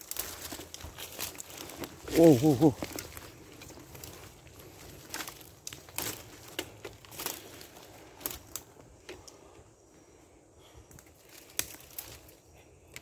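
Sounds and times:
footsteps crunching through leaves: 0.0s - 8.7s.

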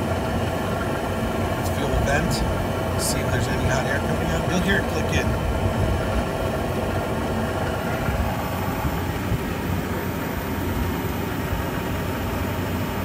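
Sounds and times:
pool heater humming: 0.0s - 13.0s.

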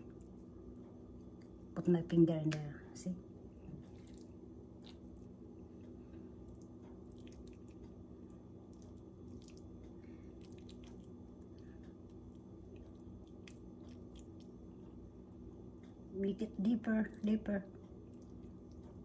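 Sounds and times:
steady low hum: 0.0s - 19.0s
wet squishing of stuffing: 3.8s - 5.3s, 6.4s - 7.8s, 8.7s - 14.6s.

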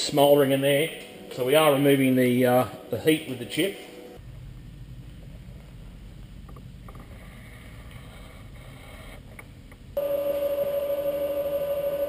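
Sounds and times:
low steady rumble: 4.1s - 10.0s
loud machine hum: 10.0s - 12.0s.

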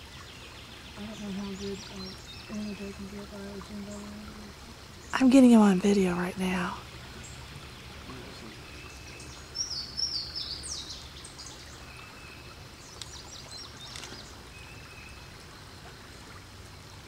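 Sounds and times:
creek water rushing: 0.0s - 17.0s
songbird singing: 0.0s - 17.0s.

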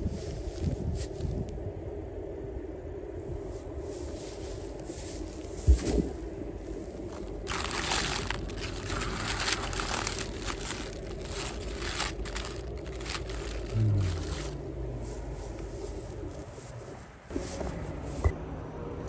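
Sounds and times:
low hum: 0.0s - 19.0s
cabbage leaves rustling: 4.0s - 16.5s.

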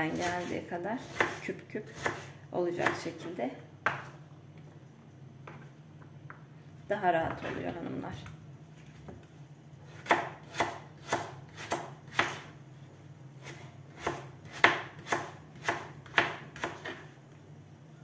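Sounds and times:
knife chopping on plastic board: 3.8s - 4.1s, 10.0s - 12.5s, 13.5s - 17.0s.

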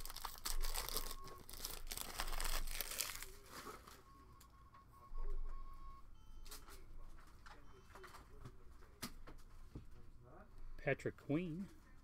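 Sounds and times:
foil wrapper tearing and crinkling: 0.0s - 3.5s.

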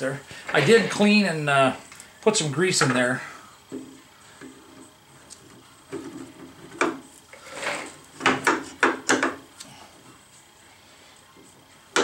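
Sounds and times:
metal sliding rub: 7.3s - 8.0s.

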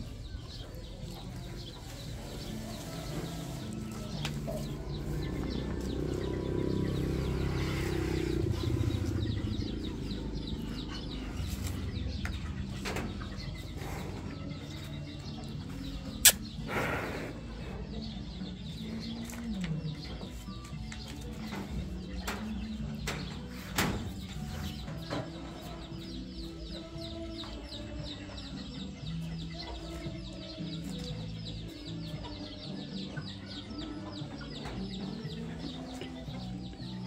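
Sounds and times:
birds calling: 0.0s - 37.0s
low rumble: 3.6s - 15.2s.

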